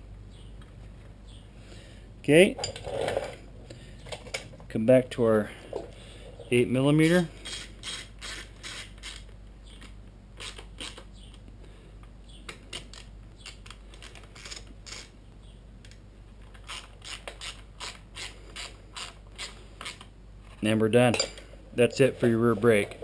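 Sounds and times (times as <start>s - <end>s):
hand ratchet clicking: 7.4s - 9.3s.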